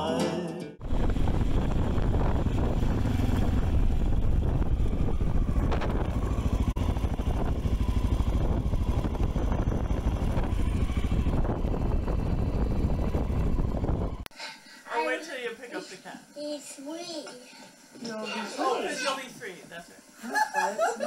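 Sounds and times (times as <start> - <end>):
motorcycle engine running: 0.8 - 14.2.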